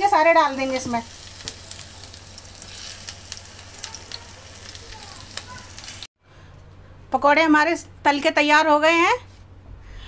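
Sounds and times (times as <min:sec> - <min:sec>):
frying in hot oil sizzling: 0:00.0 - 0:06.1
sharp oil crackles: 0:00.6 - 0:06.1.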